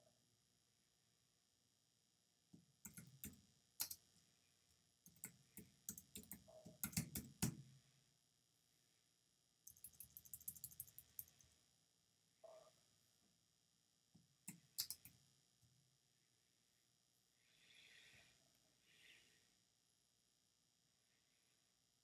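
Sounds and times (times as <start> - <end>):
typing on computer keyboard: 2.8 - 4.0, 5.1 - 7.6, 9.7 - 11.4, 14.5 - 15.2.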